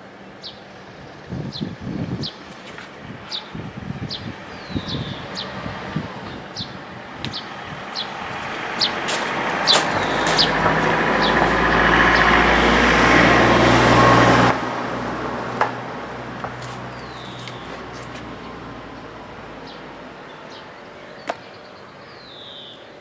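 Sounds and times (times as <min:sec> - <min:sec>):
vehicle engine: 0:03.7 - 0:21.7
bird chirps: 0:09.7 - 0:11.5, 0:16.9 - 0:18.1, 0:19.6 - 0:23.0.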